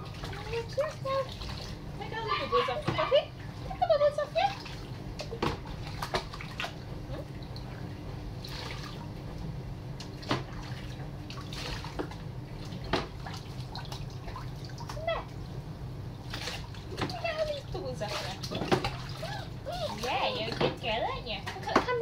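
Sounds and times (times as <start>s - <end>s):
water pouring and splashing: 0.0s - 9.4s, 10.0s - 15.4s, 16.2s - 22.0s
steady low hum: 0.0s - 22.0s
sharp splashes or knocks: 10.0s - 15.0s, 16.2s - 17.2s, 18.0s - 19.3s.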